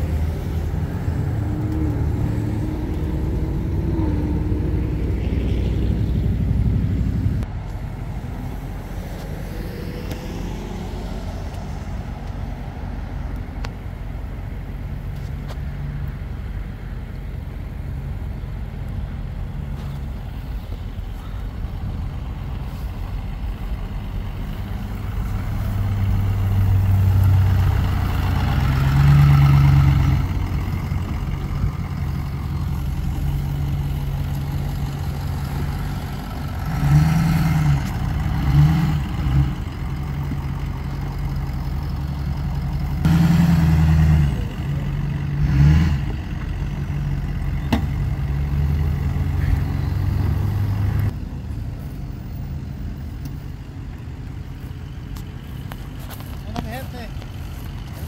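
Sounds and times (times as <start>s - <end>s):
pickup engine idling: 0.0s - 8.9s, 11.4s - 36.8s, 39.0s - 43.1s, 46.0s - 58.0s
engine throttle revs: 0.0s - 13.0s, 19.2s - 51.2s.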